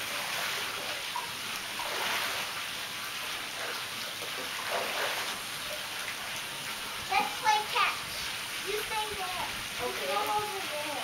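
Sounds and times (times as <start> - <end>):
water rushing and splashing: 0.0 - 11.0.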